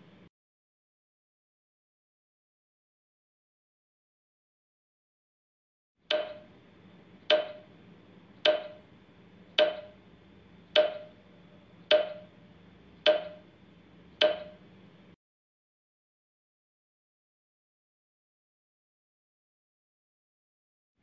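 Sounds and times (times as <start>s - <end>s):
clock-like ticks with ring: 6.1s - 6.5s, 7.3s - 7.7s, 8.4s - 8.9s, 9.6s - 10.0s, 10.8s - 11.2s, 11.9s - 12.4s, 13.0s - 13.5s, 14.2s - 14.6s.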